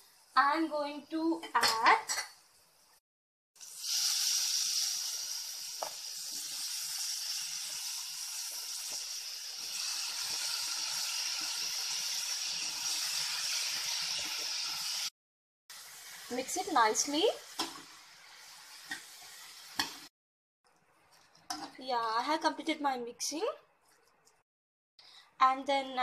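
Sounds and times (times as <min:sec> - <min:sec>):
mushrooms sizzling in oil: 0:03.6 - 0:15.1, 0:15.7 - 0:20.1.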